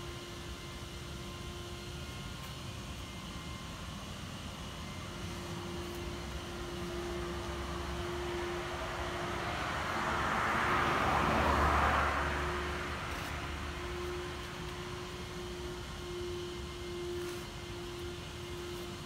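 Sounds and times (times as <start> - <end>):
steady low hum: 0.0 - 19.0
vehicle passing: 6.4 - 15.6.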